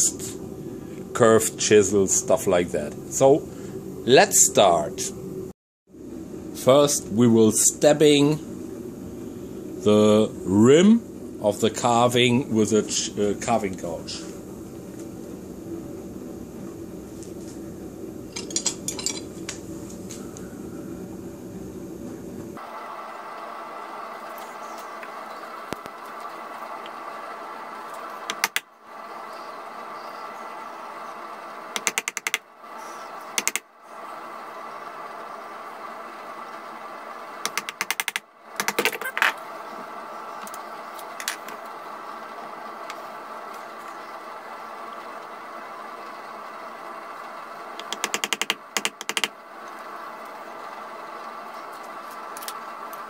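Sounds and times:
steady low hum: 0:00.0 - 0:53.0
steel chisels clinking: 0:18.4 - 0:19.3
carving gouge clicking on wood: 0:31.8 - 0:32.4, 0:33.4 - 0:33.6, 0:47.8 - 0:49.3.

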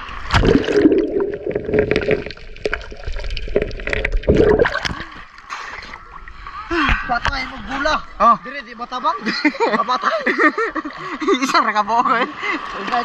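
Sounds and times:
small splashes: 0:00.2 - 0:06.2.

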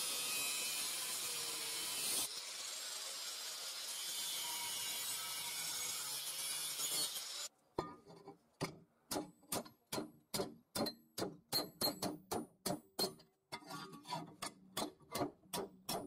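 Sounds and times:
angle grinder grinding steel: 0:00.0 - 0:07.5
hammer striking steel: 0:09.1 - 0:13.2, 0:14.4 - 0:16.0.

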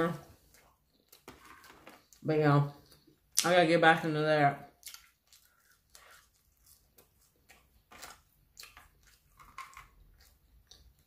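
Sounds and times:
faint chewing: 0:00.3 - 0:02.2, 0:04.7 - 0:11.0.

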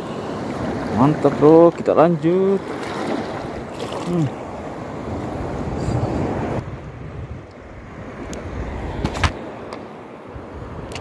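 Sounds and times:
surf: 0:00.0 - 0:06.6
wind: 0:00.0 - 0:11.0.

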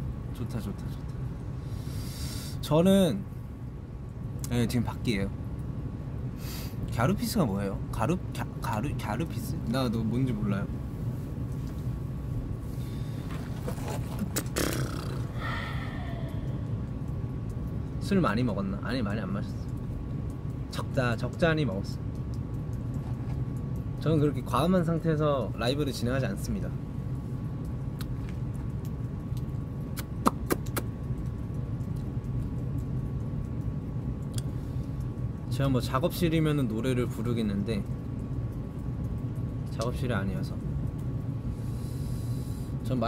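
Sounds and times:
low outdoor rumble: 0:00.0 - 0:43.0
sharp clicks: 0:28.8 - 0:34.5
short sharp clicks: 0:30.0 - 0:30.9.

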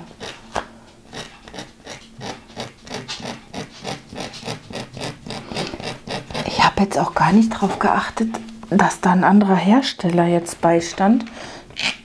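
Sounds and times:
blade scratching canvas: 0:01.1 - 0:07.7.

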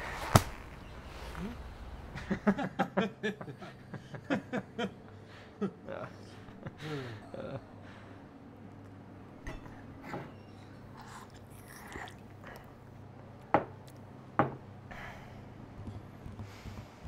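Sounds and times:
low steady hum: 0:00.0 - 0:17.0
mugs knocking on table: 0:14.4 - 0:14.6.

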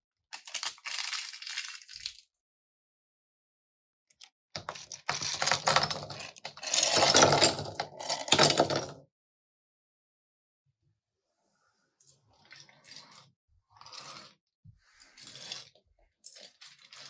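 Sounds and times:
plastic bricks clattering on a table: 0:00.3 - 0:02.2, 0:04.6 - 0:09.0.

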